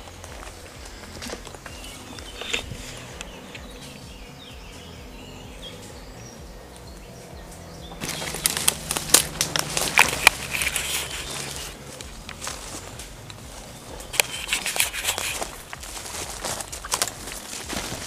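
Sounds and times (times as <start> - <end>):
branches rustling against clothing: 0.0 - 18.0.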